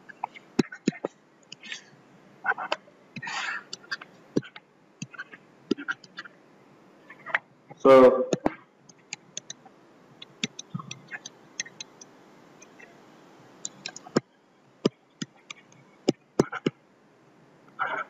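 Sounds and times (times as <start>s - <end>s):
stylus tapping on tablet: 10.2s - 12.1s, 13.7s - 16.8s.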